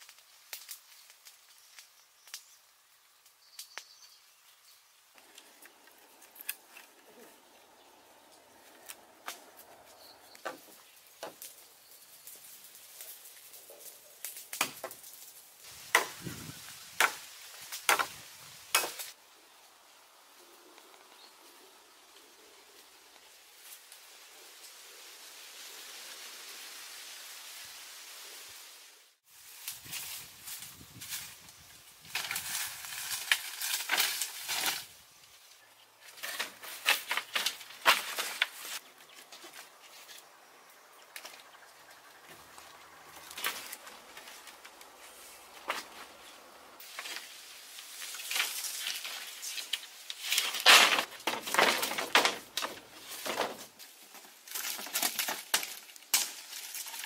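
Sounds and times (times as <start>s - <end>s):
wooden frame rustling and knocking: 50.6s - 53.7s.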